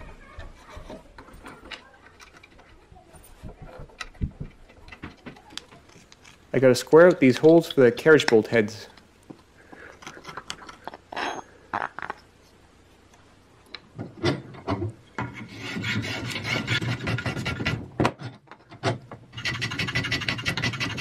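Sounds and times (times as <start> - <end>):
hand plane shaving wood: 15.3 - 17.8, 19.4 - 21.0.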